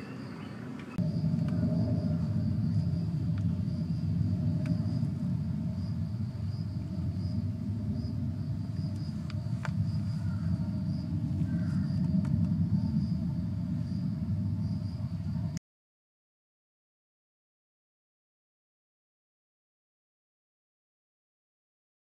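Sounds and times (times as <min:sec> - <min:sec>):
insect chirp: 0:00.0 - 0:15.6
low rumble: 0:00.0 - 0:15.6.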